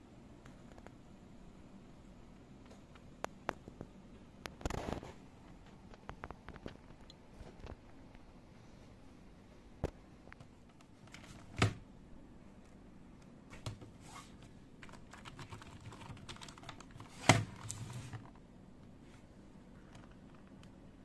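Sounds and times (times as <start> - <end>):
keyboard rattle: 14.8 - 17.7.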